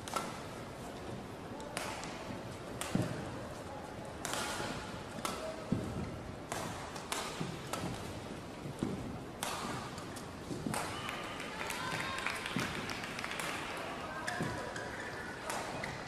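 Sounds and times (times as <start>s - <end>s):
racket striking shuttlecock: 0.0s - 0.5s, 2.8s - 3.2s, 4.2s - 8.2s, 8.8s - 11.0s.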